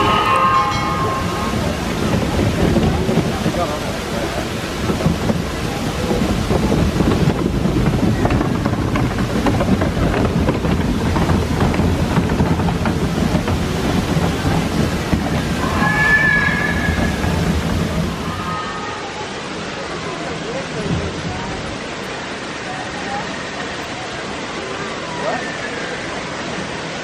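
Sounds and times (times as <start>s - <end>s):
high warbling tone: 0.0s - 3.1s, 15.6s - 19.2s
wind buffeting microphone: 0.0s - 19.6s
waterfalls rushing: 0.0s - 27.0s.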